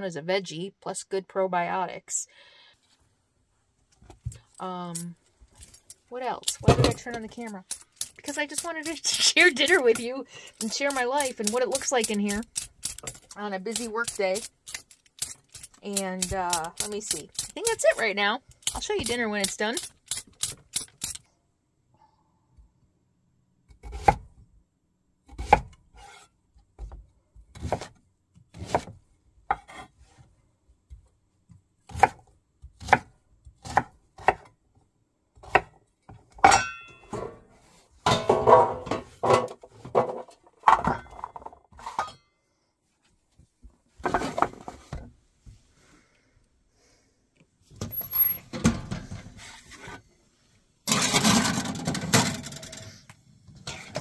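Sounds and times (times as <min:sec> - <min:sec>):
dishes and pans clattering: 0:38.1 - 0:42.2.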